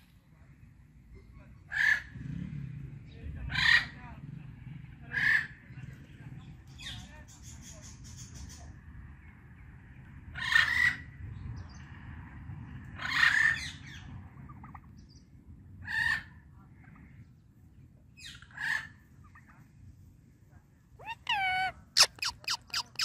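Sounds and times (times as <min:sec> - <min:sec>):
parakeet squawking: 0:21.0 - 0:23.0.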